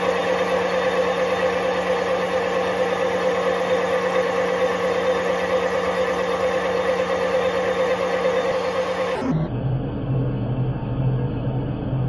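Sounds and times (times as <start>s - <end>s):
metal lathe cutting with ringing hum: 0.0s - 11.9s.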